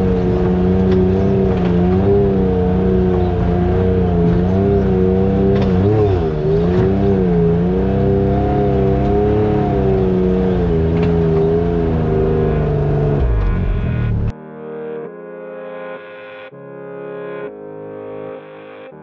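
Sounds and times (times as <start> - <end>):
utility vehicle engine running: 0.0 - 14.3.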